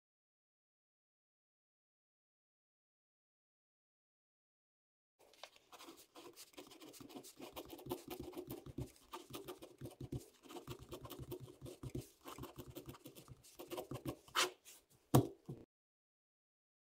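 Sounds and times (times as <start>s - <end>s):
pen scratching on paper: 5.5s - 14.8s
pen dropped onto paper: 15.2s - 15.4s.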